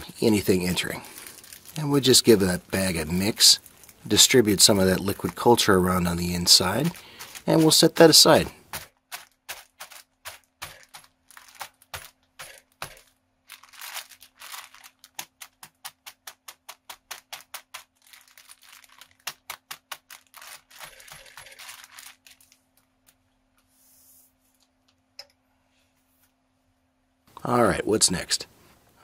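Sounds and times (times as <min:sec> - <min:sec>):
grain rattling in a bag: 0:00.1 - 0:22.6
plastic crinkling: 0:00.1 - 0:23.4.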